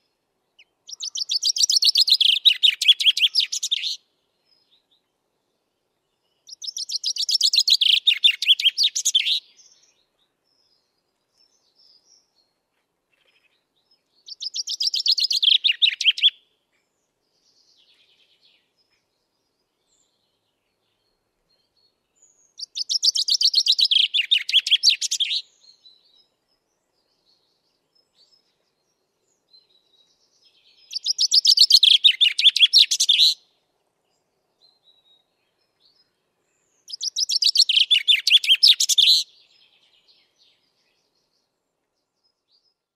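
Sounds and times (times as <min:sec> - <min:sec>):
chaffinch singing: 0:00.0 - 0:04.9, 0:06.3 - 0:12.4, 0:13.2 - 0:16.4, 0:21.8 - 0:33.5, 0:34.6 - 0:41.4.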